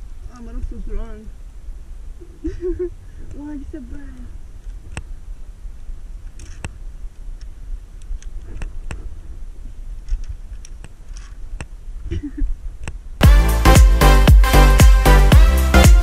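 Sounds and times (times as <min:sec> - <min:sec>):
electronic dance music: 0:13.2 - 0:16.0.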